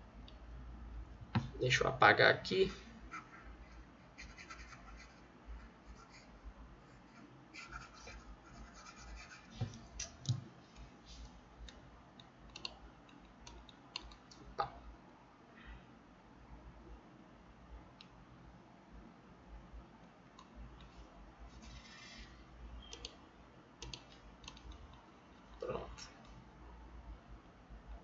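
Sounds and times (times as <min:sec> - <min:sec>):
stylus scratching on a tablet: 0:03.1 - 0:10.0, 0:21.5 - 0:22.4.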